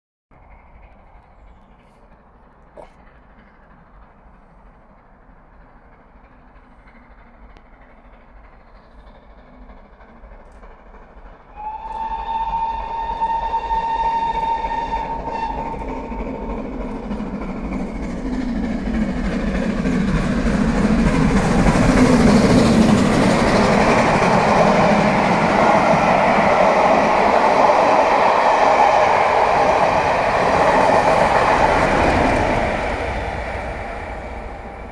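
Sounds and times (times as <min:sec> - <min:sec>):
train wheels on rails: 0:00.3 - 0:34.9
steam engine exhaust: 0:00.4 - 0:34.9
steam locomotive whistle: 0:11.5 - 0:16.4.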